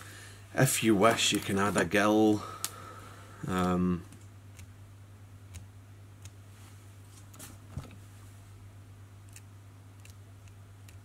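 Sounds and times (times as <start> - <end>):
steady low hum: 0.0 - 11.0
marker and fingers clicking: 9.3 - 11.0.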